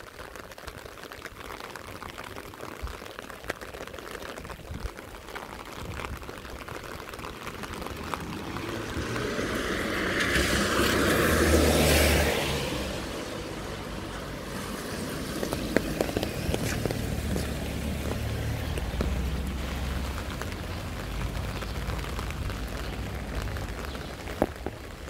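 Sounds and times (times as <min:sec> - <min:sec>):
light rain patter: 0:00.0 - 0:25.0
car tyres hissing on wet road: 0:06.7 - 0:25.0.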